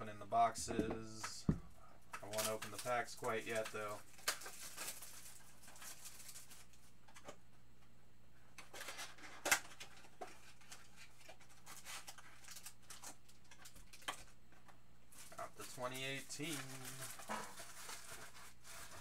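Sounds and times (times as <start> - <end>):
cardboard and foil rustling: 2.2 - 6.8, 15.1 - 19.0.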